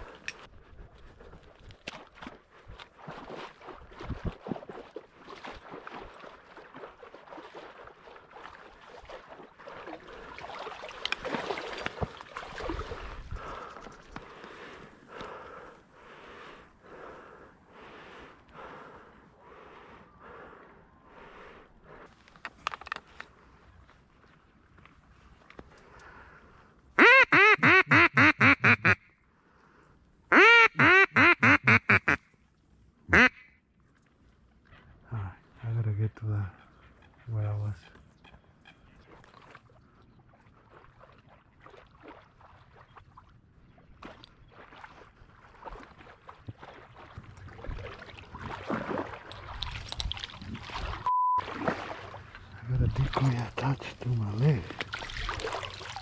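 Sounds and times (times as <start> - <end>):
water sloshing and splashing: 0.0 - 17.9, 37.8 - 56.0
duck call quacks: 27.0 - 29.1, 30.3 - 32.2, 33.1 - 33.5.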